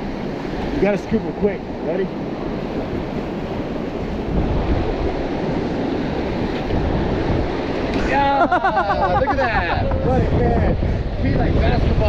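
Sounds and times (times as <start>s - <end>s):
surf washing on rocks: 0.0s - 12.0s
wind noise on microphone: 0.0s - 12.0s.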